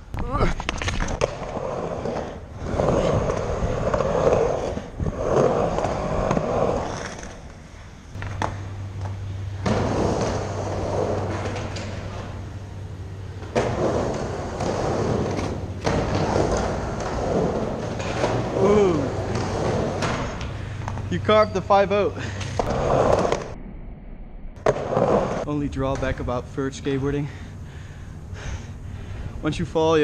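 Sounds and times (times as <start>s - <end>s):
skateboard wheels rolling on ramp: 0.2s - 21.1s, 22.6s - 23.6s, 24.6s - 26.4s.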